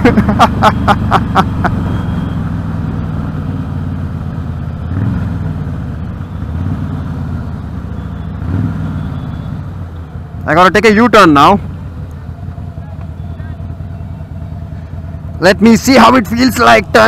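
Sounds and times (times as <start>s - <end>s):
motorcycle engine running: 0.0s - 17.0s.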